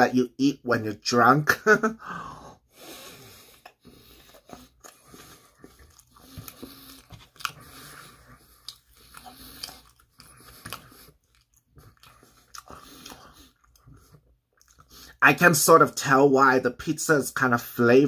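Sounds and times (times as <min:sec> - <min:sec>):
person chewing pizza: 0:02.8 - 0:15.2.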